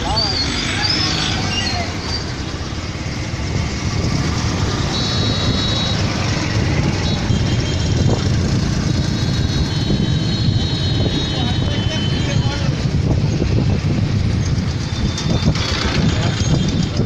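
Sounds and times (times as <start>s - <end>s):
truck engines rumbling: 0.0s - 17.0s
tyre and road noise: 0.0s - 17.0s.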